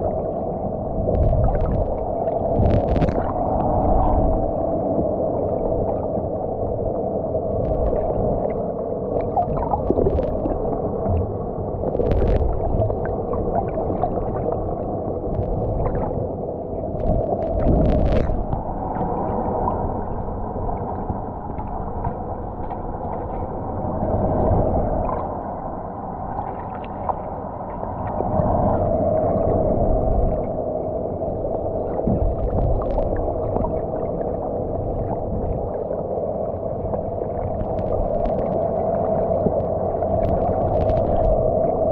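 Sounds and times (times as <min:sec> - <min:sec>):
muffled underwater wash: 0:00.0 - 0:41.9
small clicks and crackles: 0:02.6 - 0:03.3, 0:09.2 - 0:14.6, 0:15.3 - 0:16.1, 0:17.0 - 0:19.1, 0:32.1 - 0:33.2, 0:37.4 - 0:38.6, 0:39.3 - 0:41.9.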